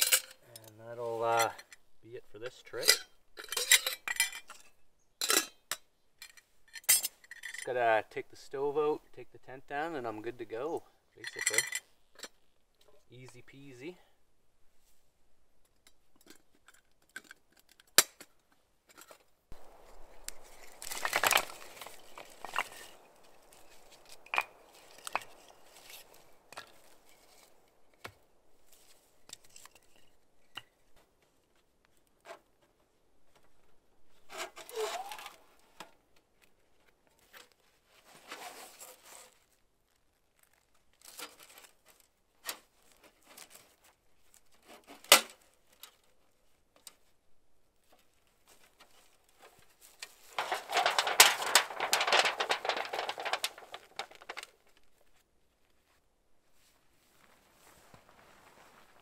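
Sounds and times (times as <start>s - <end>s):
rustling: 18.2s - 59.0s.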